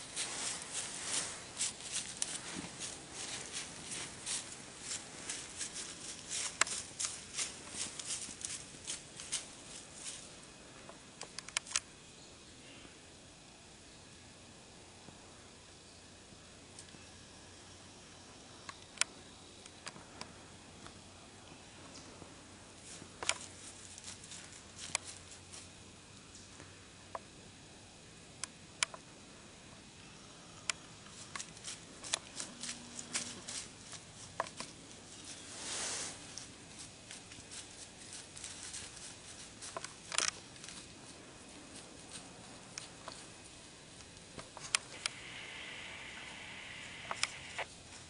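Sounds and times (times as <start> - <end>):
deer hooves crunching leaves: 0.0 - 11.1, 21.8 - 26.5, 31.0 - 48.0.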